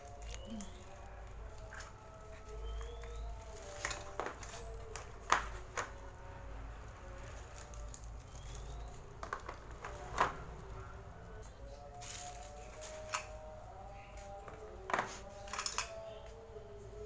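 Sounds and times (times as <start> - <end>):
plastic parts clattering on metal tubes: 2.7 - 6.2, 7.2 - 10.7, 11.4 - 13.4, 14.3 - 16.0.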